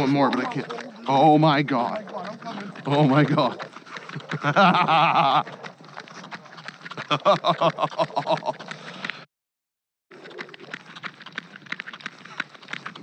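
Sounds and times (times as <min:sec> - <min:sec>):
man laughing: 0:04.2 - 0:05.5, 0:07.0 - 0:08.7.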